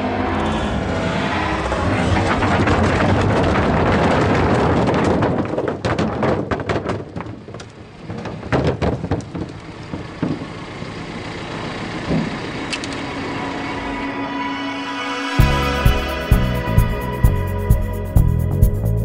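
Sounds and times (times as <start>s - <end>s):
rocks knocking and rolling: 2.2s - 10.6s
rocks crashing into truck bed: 2.3s - 10.6s.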